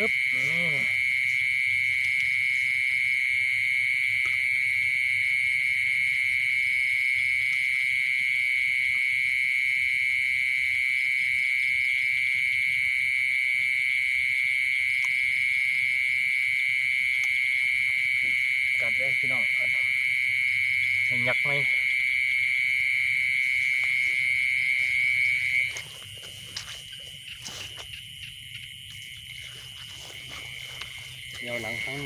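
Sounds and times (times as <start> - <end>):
insect chorus trilling: 0.0 - 32.0.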